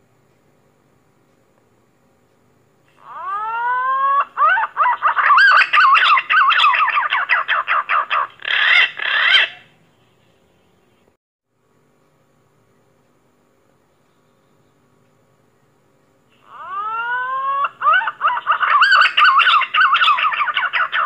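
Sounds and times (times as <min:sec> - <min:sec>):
green pigeon calling: 0:02.9 - 0:09.8, 0:16.4 - 0:21.0.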